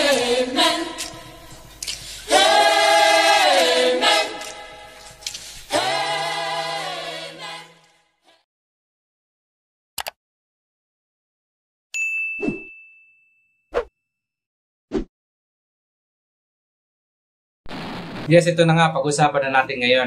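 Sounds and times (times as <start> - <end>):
a cappella chorus jingle: 0.0 - 8.5.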